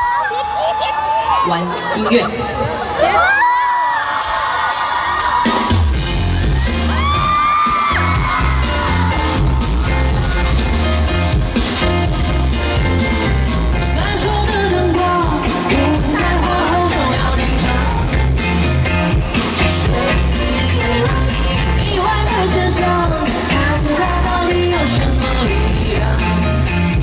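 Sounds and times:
drum beat: 4.2 - 20.5
heavy bass: 5.4 - 27.0
backing singers: 13.8 - 18.4
woman singing: 13.9 - 18.3, 19.6 - 26.7.

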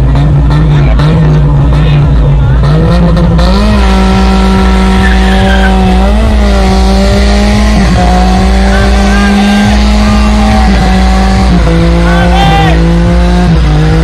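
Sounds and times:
car engine revving high: 0.0 - 14.0
tyres squealing on pavement: 4.8 - 6.1.

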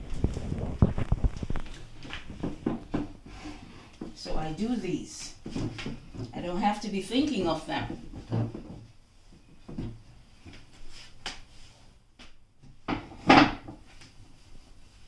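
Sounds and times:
chair bumping: 0.1 - 3.2, 7.8 - 9.0, 12.9 - 13.9
knocks on wooden chair: 12.9 - 13.8.

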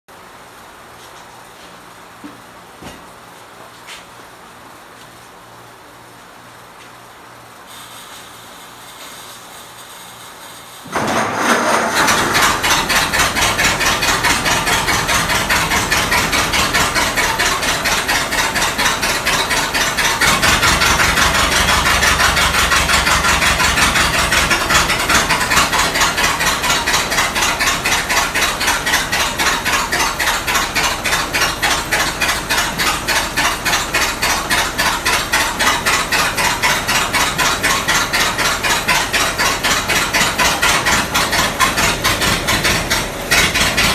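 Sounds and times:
old car engine running steadily: 11.0 - 43.9.

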